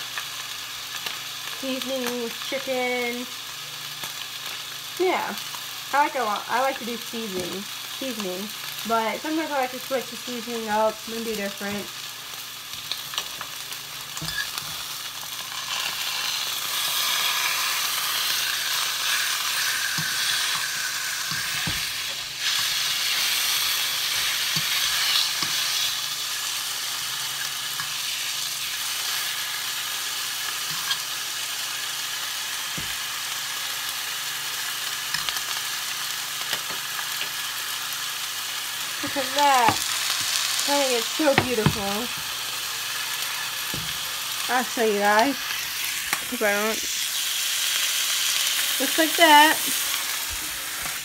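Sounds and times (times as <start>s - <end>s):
chicken sizzling in a skillet: 0.0s - 51.0s.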